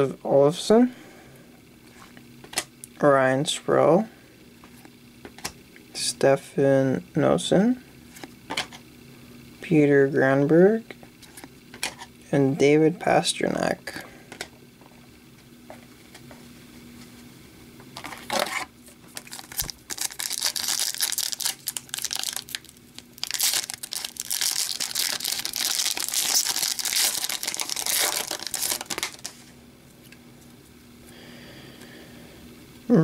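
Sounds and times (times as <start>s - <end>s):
plastic wrapper crinkling and tearing: 18.4s - 29.5s.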